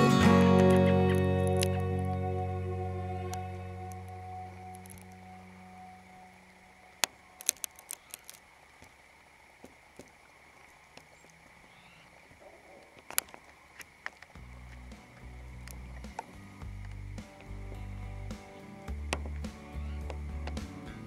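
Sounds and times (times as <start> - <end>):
background music: 0.0 - 6.2, 14.8 - 21.0.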